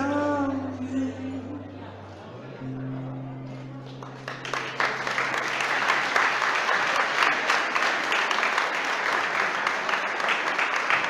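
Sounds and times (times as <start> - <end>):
low held note: 0.0 - 4.5
guests applauding: 3.8 - 11.0.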